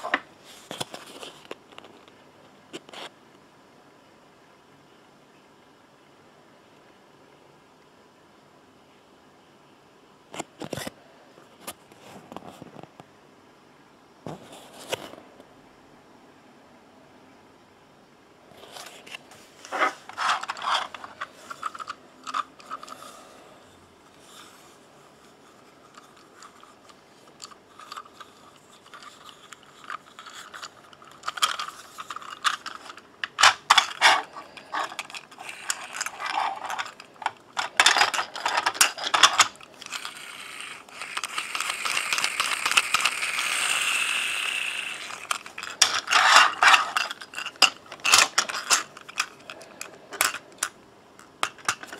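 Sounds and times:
plastic toy train clicks and rattles: 18.7 - 23.1, 25.8 - 51.9.

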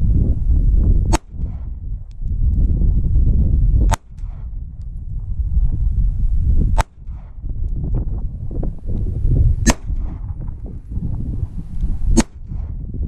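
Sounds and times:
wind on microphone: 0.0 - 13.0
pistol shot: 1.1 - 1.8, 6.8 - 7.4, 9.6 - 10.2, 12.1 - 12.8.

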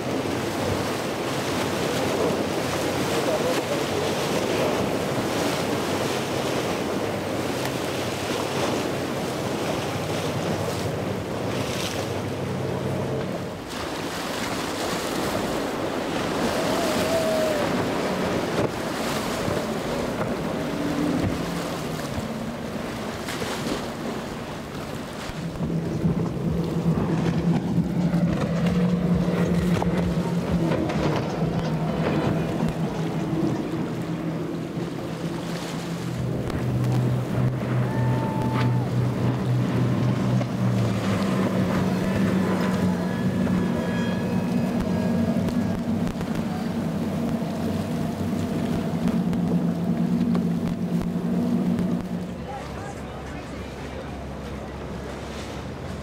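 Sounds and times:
wind buffeting microphone: 0.0 - 52.4
powerboat engines: 0.0 - 56.0
waves and surf: 0.0 - 56.0.

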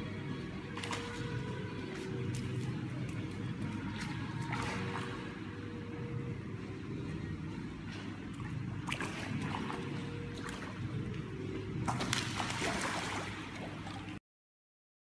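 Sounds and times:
dog splashing in pool water: 11.9 - 14.0.

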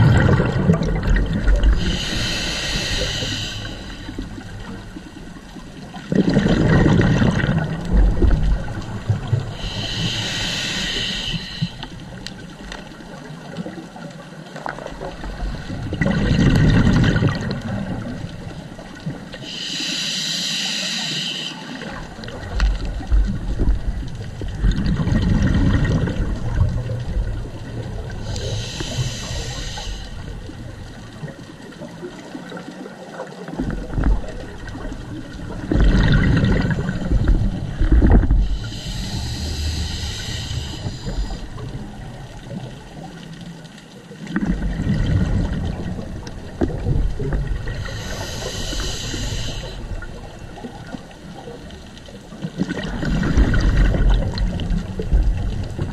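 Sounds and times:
exhaled air bubbling: 0.0 - 14.0, 14.7 - 55.9
hissing inhale through regulator: 1.6 - 4.9, 9.4 - 12.3, 19.4 - 22.1, 27.8 - 30.9, 38.3 - 42.0, 47.6 - 50.6.

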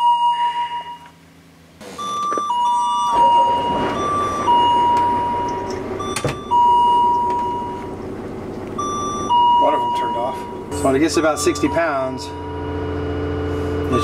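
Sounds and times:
bus engine rumble: 0.0 - 14.0
two-note ding-dong warning chime: 2.0 - 7.9, 8.8 - 14.0.

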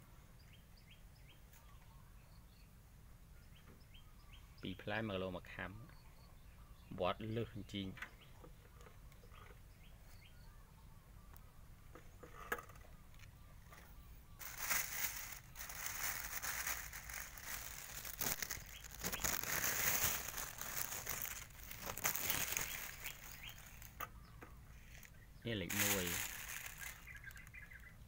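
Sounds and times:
plastic bag crinkling: 14.4 - 24.0, 24.8 - 27.6.

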